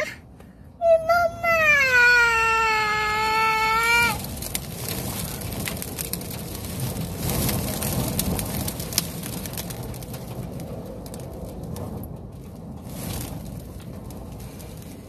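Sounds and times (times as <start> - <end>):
grit ticking on car: 4.2 - 15.0.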